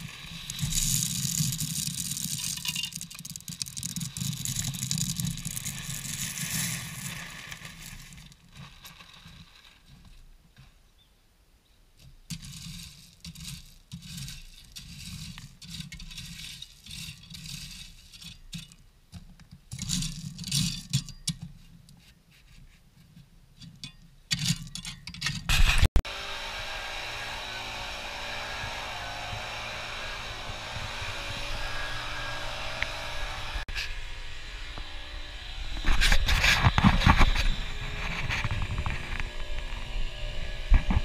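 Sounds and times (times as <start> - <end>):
leaf blower running: 0.0 - 2.4, 25.5 - 41.0
gravel being raked: 0.0 - 10.4, 12.3 - 18.8, 35.7 - 41.0.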